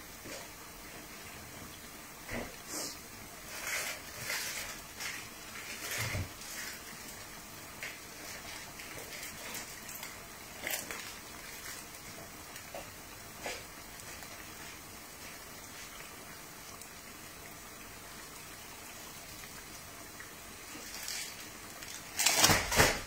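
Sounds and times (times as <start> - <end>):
fritters sizzling in hot oil: 0.0 - 22.9.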